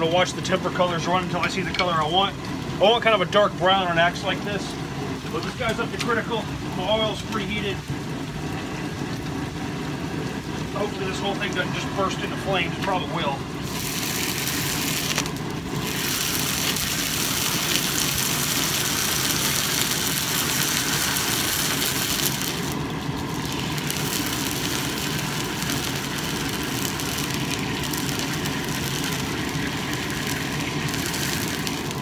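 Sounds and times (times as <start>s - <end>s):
hot steel hissing in oil: 13.6s - 32.0s.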